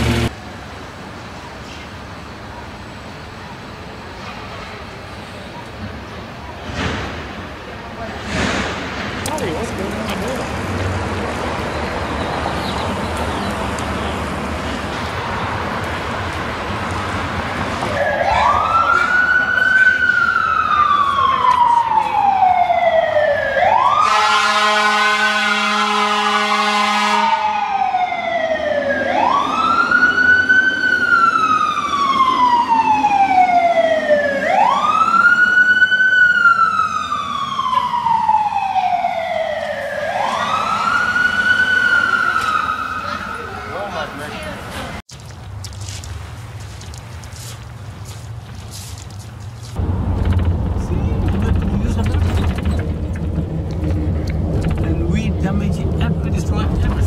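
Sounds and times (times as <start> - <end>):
horn blast: 0.0 - 0.3, 24.0 - 27.4
street traffic: 0.0 - 57.0
fire engine siren wailing: 17.6 - 44.4.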